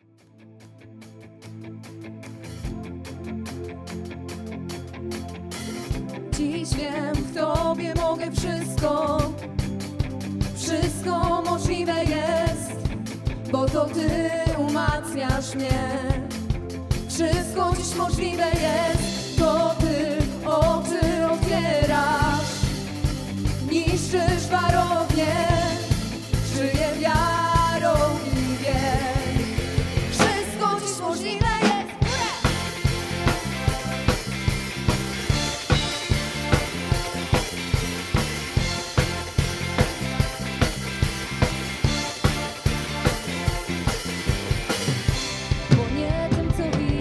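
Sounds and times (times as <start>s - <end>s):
drums and bass: 2.4s - 47.0s
person singing: 6.4s - 9.4s, 10.6s - 12.9s, 13.5s - 16.2s, 17.2s - 22.6s, 23.6s - 32.8s, 45.7s - 47.0s.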